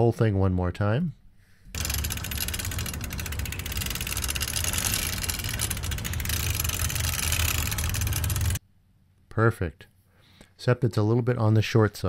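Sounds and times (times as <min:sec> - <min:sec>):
bike low hum: 0:01.8 - 0:08.6
fast even ticking: 0:01.8 - 0:08.6.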